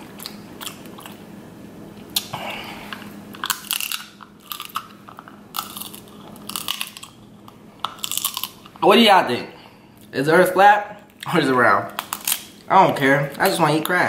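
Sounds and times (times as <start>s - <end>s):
person chewing: 0.0s - 1.3s, 1.9s - 8.8s, 11.9s - 12.7s.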